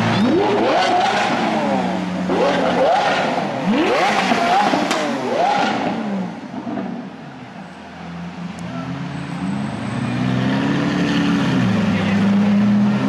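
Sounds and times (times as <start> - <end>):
car engine revving: 0.0 - 7.2, 8.1 - 13.0.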